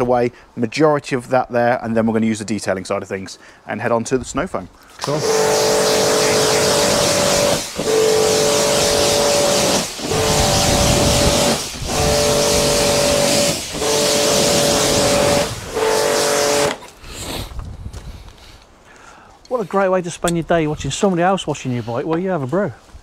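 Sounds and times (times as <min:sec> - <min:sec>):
pump motor humming: 0:05.0 - 0:16.8
pressure washer spray hissing: 0:05.0 - 0:17.3.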